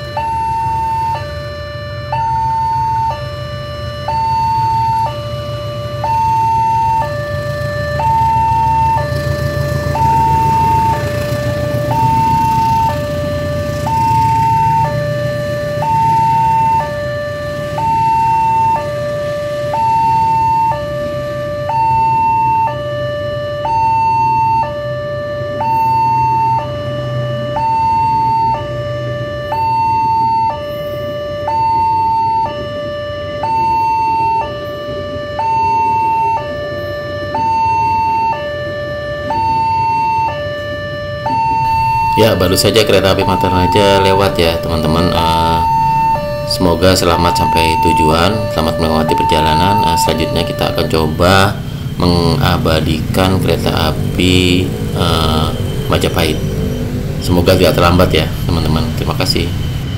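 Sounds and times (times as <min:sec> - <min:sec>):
level crossing two-tone alarm: 0:00.0 - 0:59.9
passing train rumbling: 0:07.3 - 0:16.7, 0:41.6 - 0:59.9.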